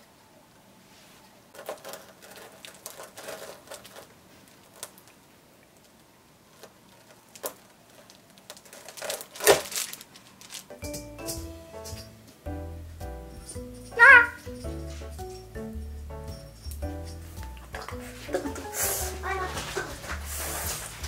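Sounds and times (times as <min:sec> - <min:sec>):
sharp cracks: 0:06.6 - 0:11.0.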